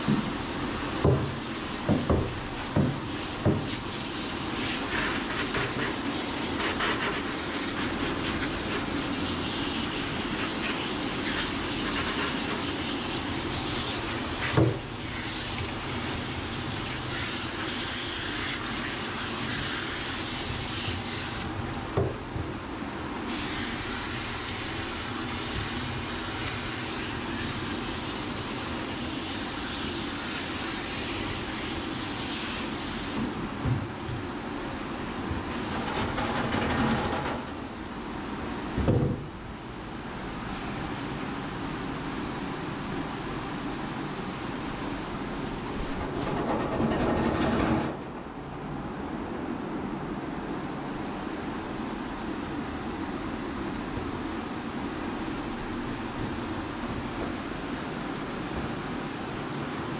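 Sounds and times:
hose spraying water: 0.0 - 21.5, 23.3 - 33.4.

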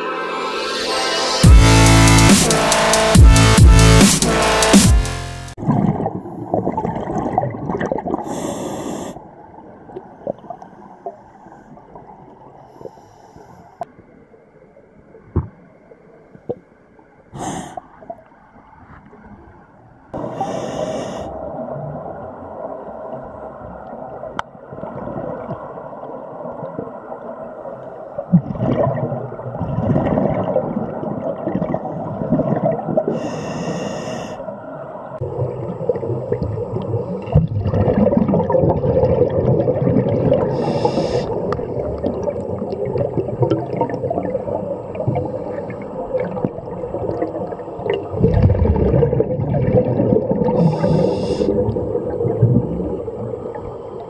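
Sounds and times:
exhaled bubbles rumbling underwater: 5.6 - 12.7, 17.9 - 33.4, 34.4 - 54.0
hissing regulator inhalations: 8.2 - 9.2, 17.4 - 17.8, 20.2 - 21.4, 33.1 - 34.4, 40.5 - 41.5, 50.5 - 51.7.

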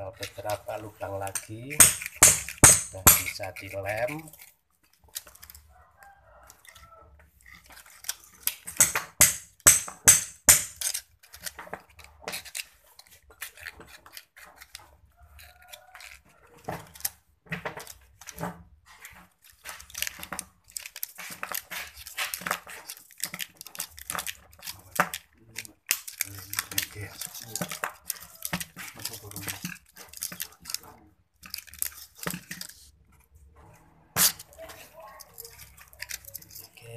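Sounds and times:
hand cutter snipping wire: 1.2 - 4.4, 8.0 - 11.5, 34.2 - 34.6
handling of armature: 6.5 - 36.9.

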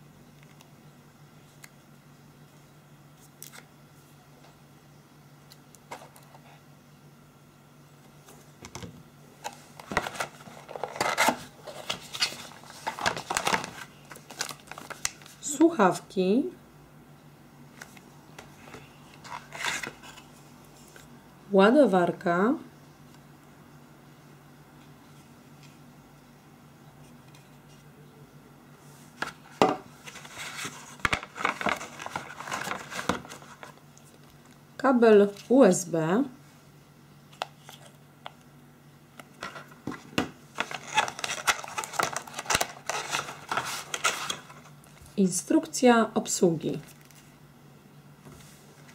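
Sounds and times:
cardboard packaging clicks and scrapes: 9.4 - 15.4, 29.2 - 33.8, 39.4 - 44.7
plastic bag crinkling: 9.8 - 15.4, 30.1 - 34.6, 40.6 - 44.7.

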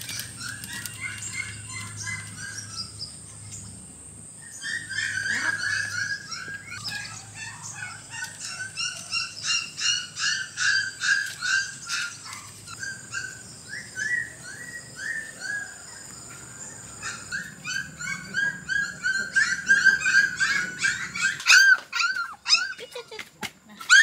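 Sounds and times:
animal whimpering cries: 17.0 - 23.0.

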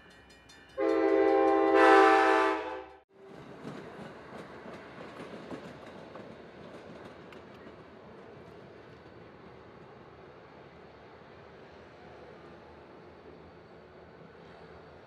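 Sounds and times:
train coaches rumbling: 0.0 - 15.0
locomotive horn blast: 0.8 - 3.0.

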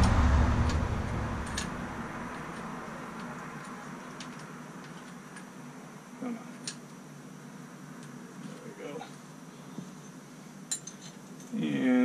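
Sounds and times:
steady rush: 0.0 - 3.2.

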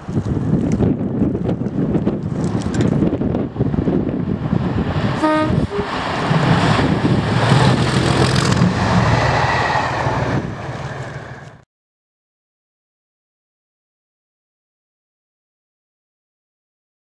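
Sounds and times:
diesel locomotive engine working hard: 0.0 - 11.6
two-note locomotive horn: 5.2 - 6.0.

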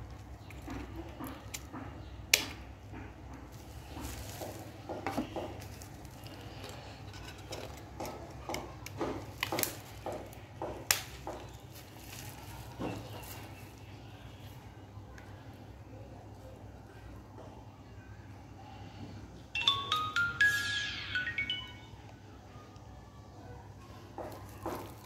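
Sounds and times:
plastic packaging rustling: 3.4 - 8.4, 9.1 - 14.0, 24.2 - 25.0.

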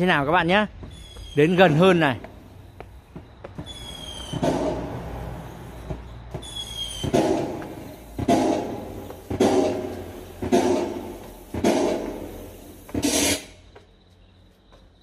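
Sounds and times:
firework whistles: 3.6 - 13.6
firework bangs with crackle: 5.8 - 13.4.

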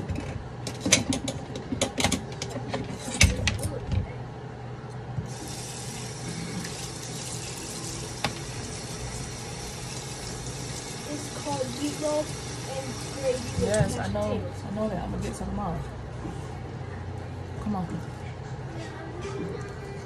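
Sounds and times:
tap water running into sink: 5.3 - 14.0.

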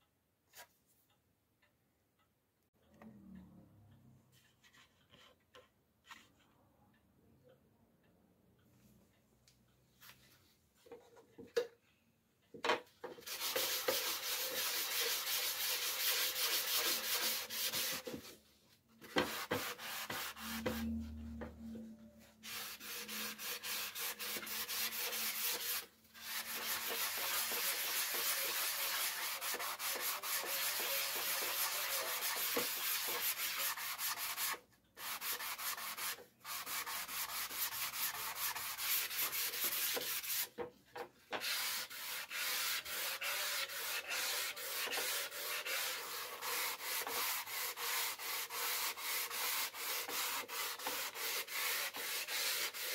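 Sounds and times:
sanding block rubbing wood: 13.2 - 18.3, 19.0 - 21.0, 22.4 - 40.5, 41.4 - 52.9.

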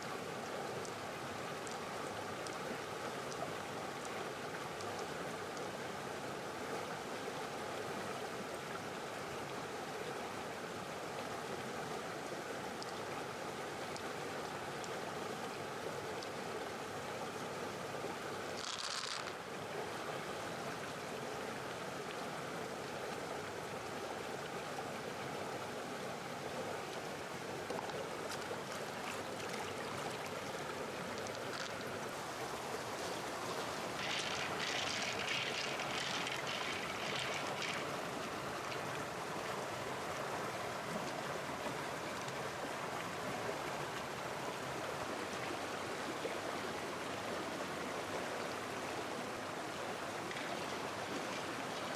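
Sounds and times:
stream flowing over rocks: 0.0 - 51.9
pearls clicking in a shell: 18.6 - 19.4.

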